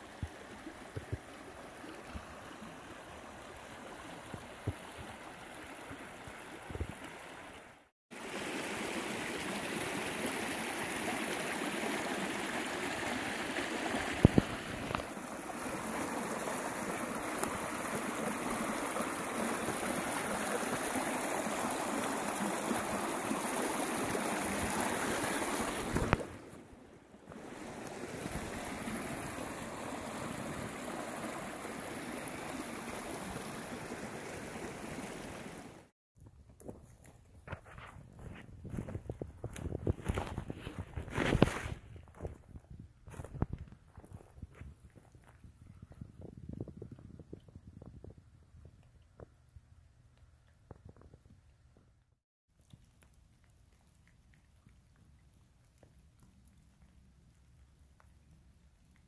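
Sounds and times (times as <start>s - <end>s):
creek water rushing over rocks: 0.0s - 35.9s.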